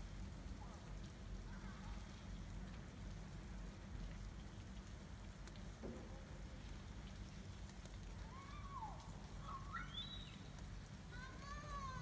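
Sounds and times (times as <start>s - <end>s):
light pattering and ticks: 0.9s - 8.4s.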